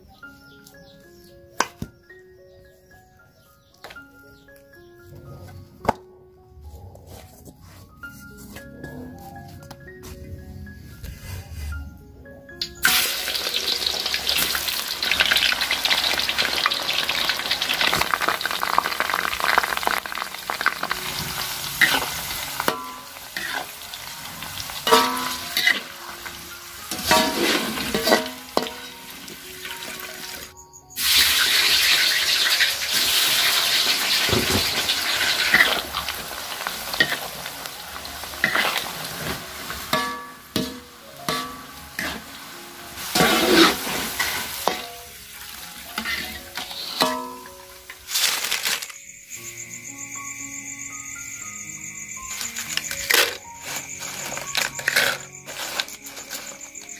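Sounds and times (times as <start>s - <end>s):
slices deep-frying in hot oil: 12.8s - 49.1s, 52.3s - 56.9s.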